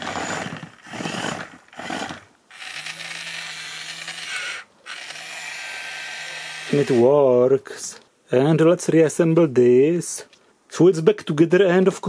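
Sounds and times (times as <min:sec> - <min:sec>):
toy electric motors running: 0:00.0 - 0:07.1.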